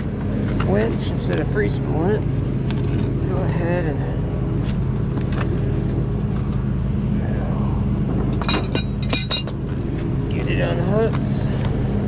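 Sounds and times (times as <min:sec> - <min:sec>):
winch hook and chain clinking: 0:08.4 - 0:09.6.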